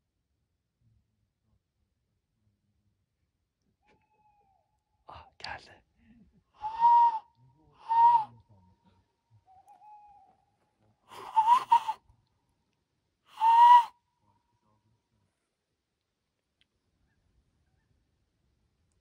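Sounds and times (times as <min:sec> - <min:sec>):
person imitating owl hoots: 0:11.1 - 0:12.0.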